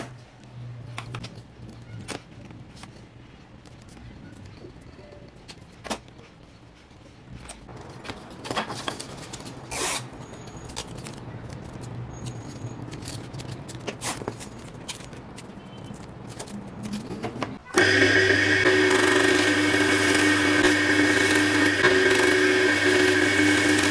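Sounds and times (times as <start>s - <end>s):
tape tearing from dispenser: 9.6s - 10.1s, 12.9s - 15.1s.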